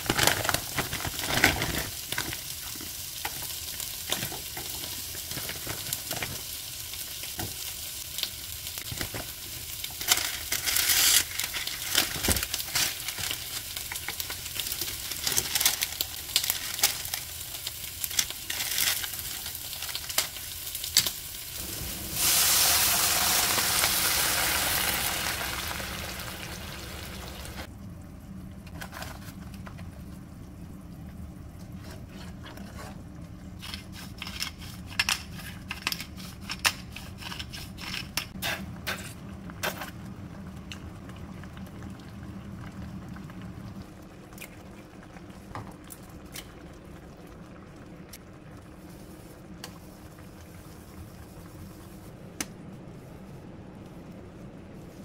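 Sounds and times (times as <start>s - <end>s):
onions sizzling in a pan: 0.2s - 27.7s.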